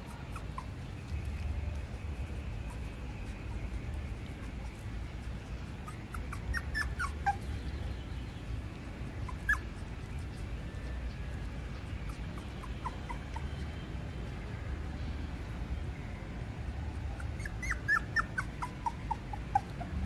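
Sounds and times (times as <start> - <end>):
puppy whimpering: 0.0 - 0.8, 5.8 - 7.6, 9.2 - 9.9, 12.0 - 13.8, 17.1 - 20.0.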